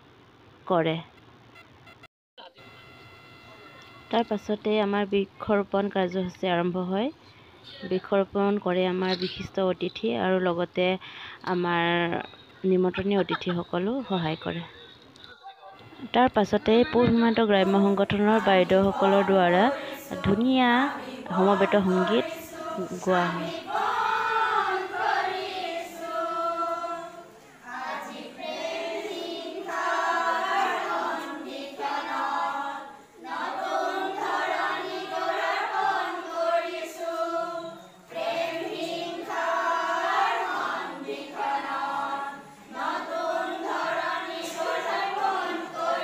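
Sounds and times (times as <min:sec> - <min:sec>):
women singing in unison: 0:16.6 - 0:46.0.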